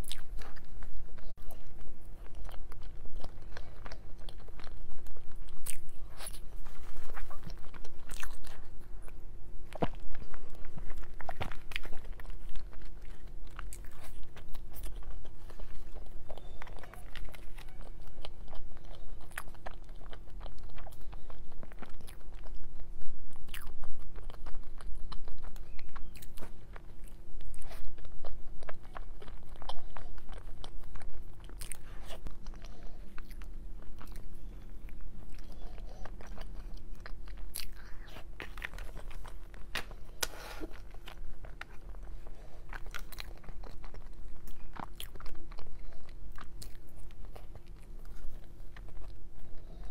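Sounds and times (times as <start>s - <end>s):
chewing cake: 0.0s - 49.9s
faint steady hum: 0.0s - 49.9s.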